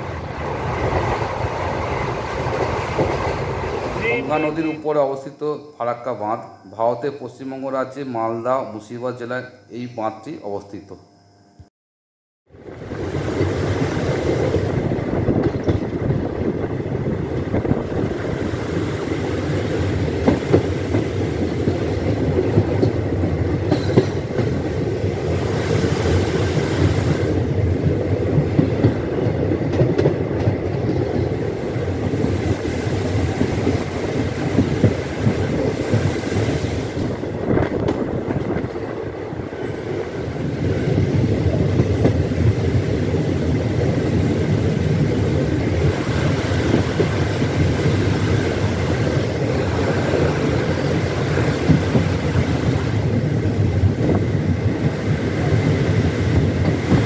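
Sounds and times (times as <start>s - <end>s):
train wheels rumbling on track: 0.0s - 5.1s, 12.6s - 57.0s
clacks over rail joints: 0.8s - 4.3s, 15.3s - 16.4s, 19.9s - 25.3s, 28.2s - 36.2s, 37.5s - 39.9s, 41.6s - 42.6s, 45.8s - 57.0s.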